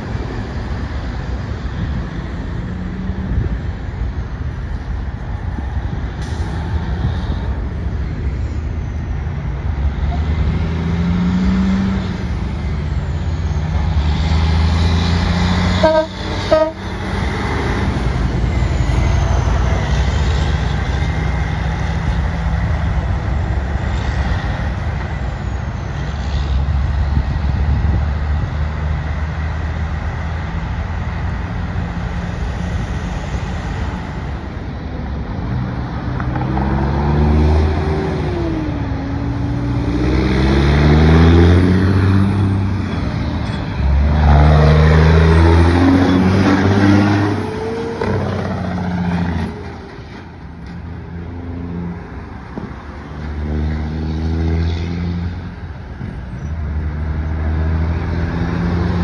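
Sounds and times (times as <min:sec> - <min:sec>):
truck engines and tyres rumbling: 0:00.0 - 0:59.0
truck horn toots: 0:15.7 - 0:16.9.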